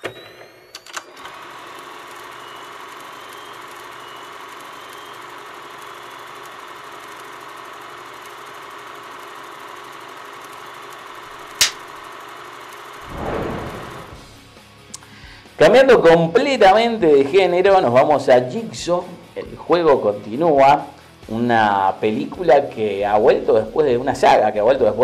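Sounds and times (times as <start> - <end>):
film projector whirring: 0.0 - 14.4
clapperboard snap: 11.6 - 11.8.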